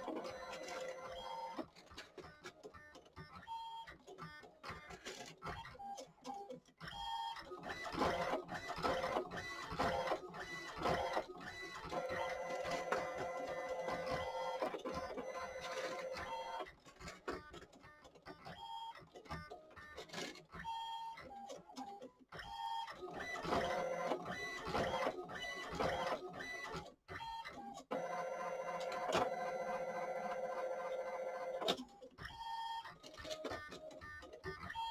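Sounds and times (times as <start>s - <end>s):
printer motor whine: 0.0s - 1.7s, 6.9s - 16.7s, 22.4s - 34.0s.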